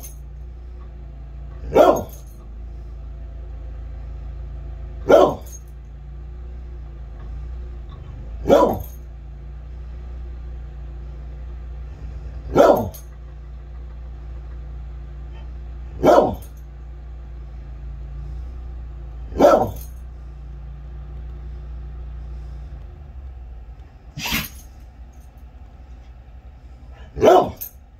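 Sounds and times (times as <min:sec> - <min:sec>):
loader engine running: 0:00.0 - 0:27.9
dog barking: 0:01.6 - 0:02.4, 0:05.0 - 0:05.7, 0:08.1 - 0:09.0, 0:12.3 - 0:13.1, 0:15.3 - 0:16.6, 0:19.3 - 0:20.0, 0:27.0 - 0:27.8.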